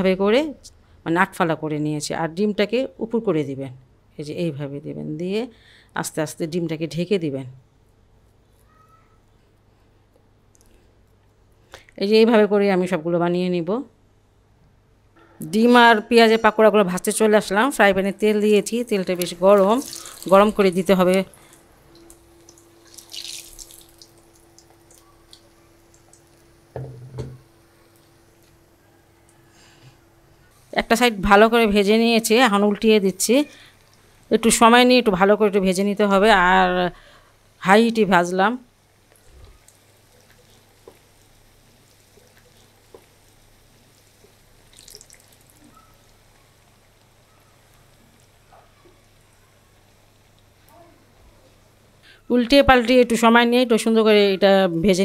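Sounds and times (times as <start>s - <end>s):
faint steady hum: 0.0s - 55.0s
food sizzling in hot oil: 18.1s - 28.4s, 37.4s - 50.7s.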